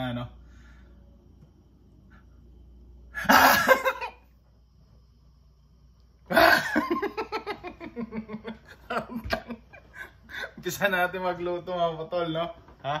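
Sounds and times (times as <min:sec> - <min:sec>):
man laughing: 0:03.2 - 0:04.2, 0:06.3 - 0:10.6.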